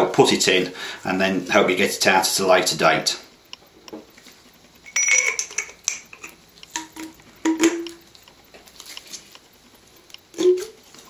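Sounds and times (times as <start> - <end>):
metal clinks and knocks: 4.8 - 8.0.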